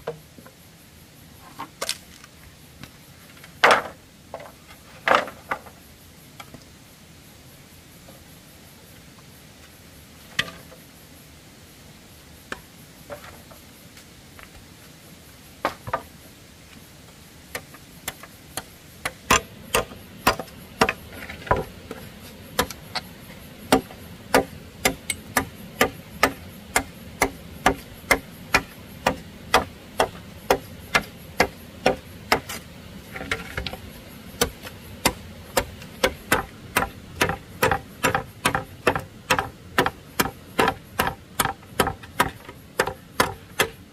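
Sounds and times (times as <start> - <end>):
machete chopping bamboo: 17.6 - 21.7, 23.7 - 32.6, 34.4 - 43.8.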